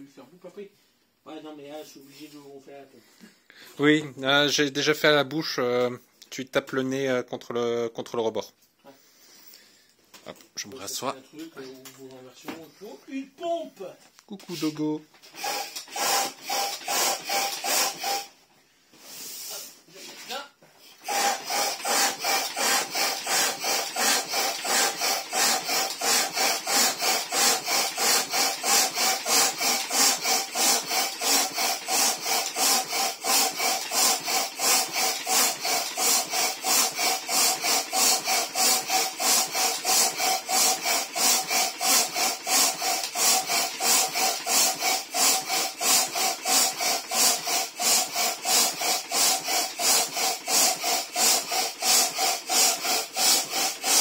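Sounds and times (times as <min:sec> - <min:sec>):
floor pump air rasping: 0:14.4 - 0:54.0.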